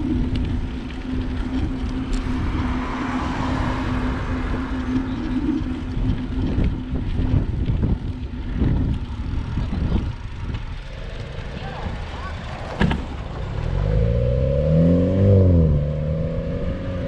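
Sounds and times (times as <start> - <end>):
road and traffic noise: 0.0 - 17.0
wind rumbling on microphone: 0.0 - 17.0.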